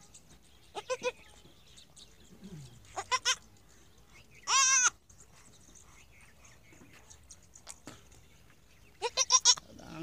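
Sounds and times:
goat kid bleating: 0.7 - 1.2, 2.9 - 3.4, 4.4 - 5.0, 9.0 - 10.0.

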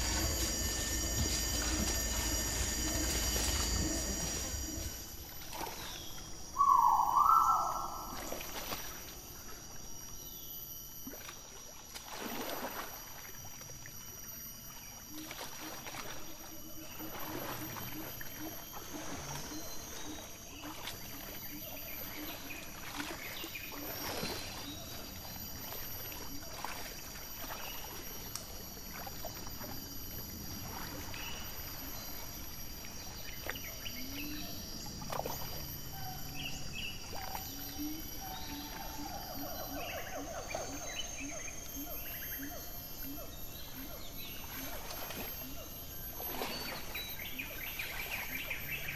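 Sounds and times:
rhino call of rising notes: 0.0 - 5.2
high-pitched whine: 0.0 - 48.9
mud sloshing and splashing: 11.9 - 13.2.

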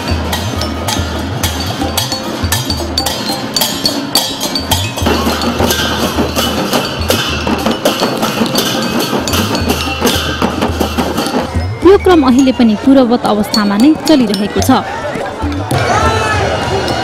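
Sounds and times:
brass cymbals clashing: 0.0 - 11.7
drums beaten with sticks: 0.0 - 14.8.

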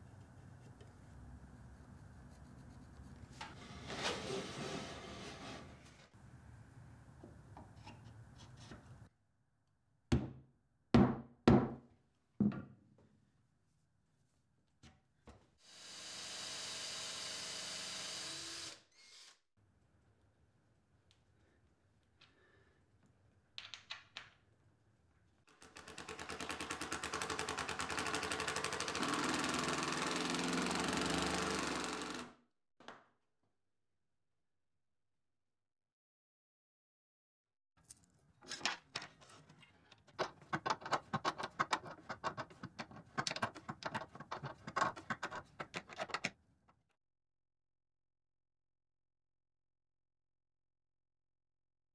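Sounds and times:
cordless drill driving: 15.7 - 19.4, 25.9 - 32.4.

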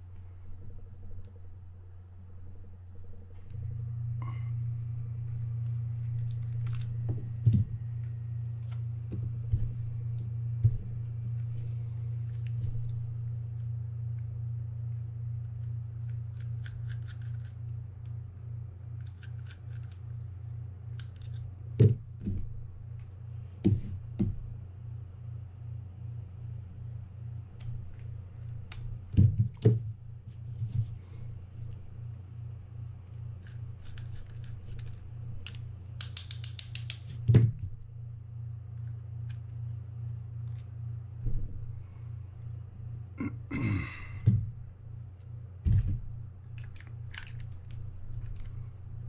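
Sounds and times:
steady low hum: 0.0 - 49.0
metal clicks of hand tools: 35.5 - 37.0.

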